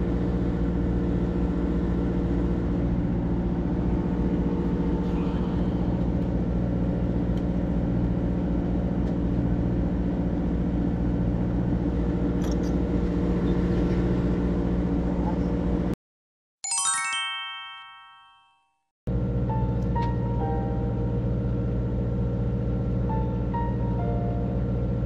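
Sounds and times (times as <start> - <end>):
boat engine humming: 0.0 - 15.9, 19.1 - 25.0.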